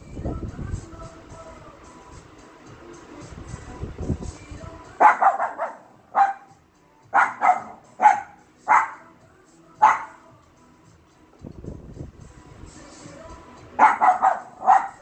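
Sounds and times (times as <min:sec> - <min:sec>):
dog barking: 0:05.0 - 0:06.5, 0:07.1 - 0:09.1, 0:09.8 - 0:10.2, 0:13.8 - 0:15.0.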